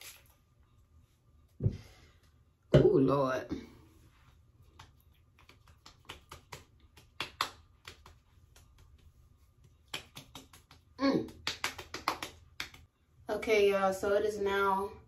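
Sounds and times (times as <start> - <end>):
hands patting face skin: 4.6 - 12.9.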